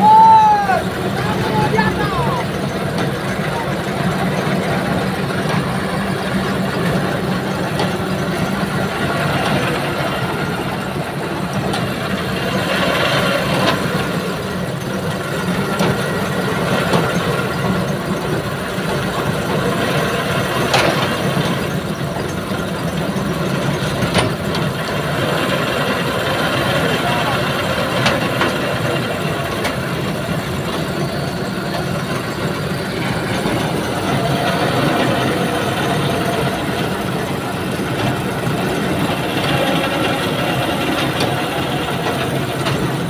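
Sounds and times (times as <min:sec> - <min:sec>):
heavy diesel engine running: 0:00.0 - 0:43.0.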